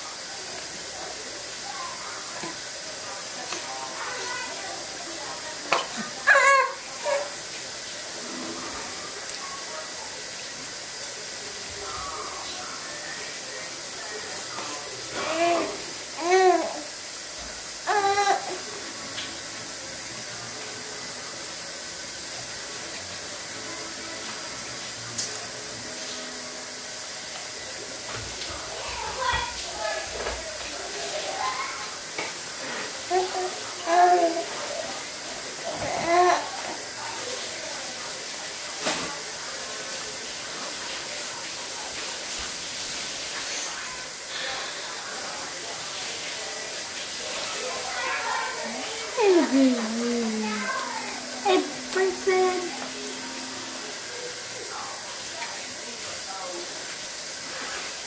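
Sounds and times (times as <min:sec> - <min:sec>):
baby vocalizing: 0:05.7 - 0:07.3, 0:49.2 - 0:52.8
short high-pitched voice: 0:49.2 - 0:52.8.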